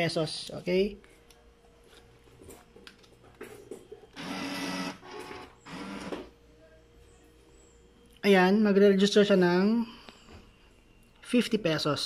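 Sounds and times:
bill acceptor motor whirring: 4.1 - 6.3.

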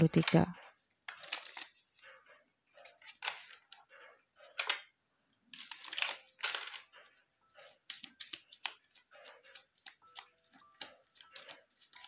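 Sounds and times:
cards being shuffled: 1.1 - 1.8, 7.7 - 12.0.

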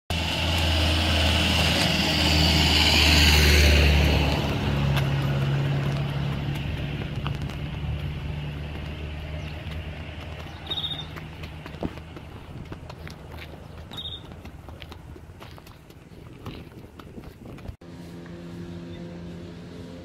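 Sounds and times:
vehicle engine running: 0.1 - 20.0.

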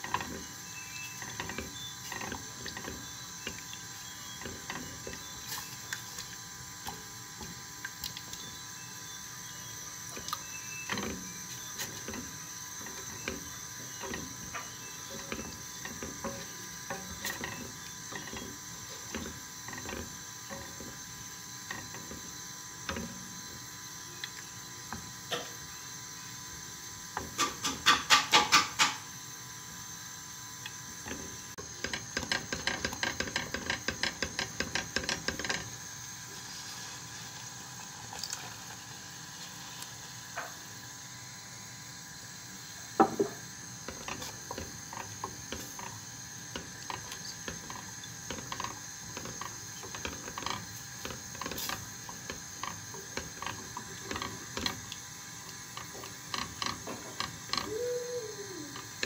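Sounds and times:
wooden spoon scraping a saucepan: 10.2 - 22.3.

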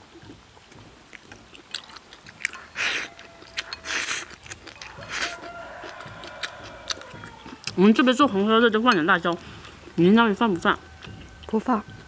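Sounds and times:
person chewing food: 0.0 - 10.0, 10.8 - 12.0
loud slurps: 3.8 - 5.4.

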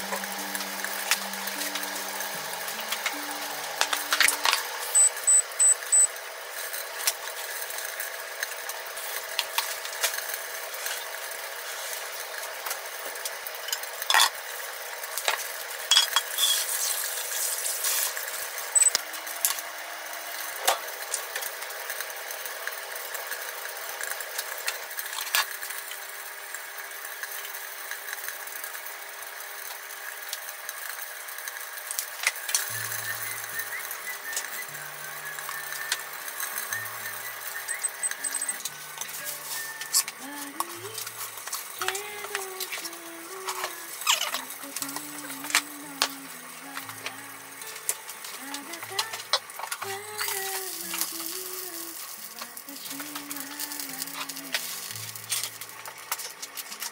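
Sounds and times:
plates and utensils clinking: 13.6 - 14.4, 15.3 - 16.7.

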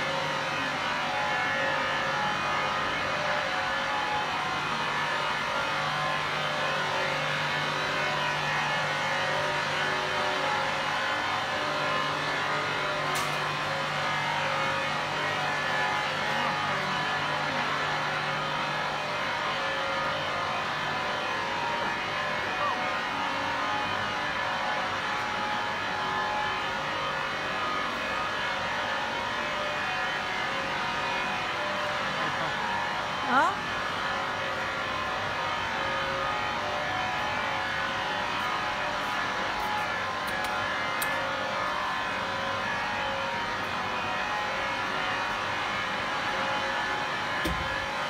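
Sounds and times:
mixer motor humming with whine: 0.0 - 48.0.

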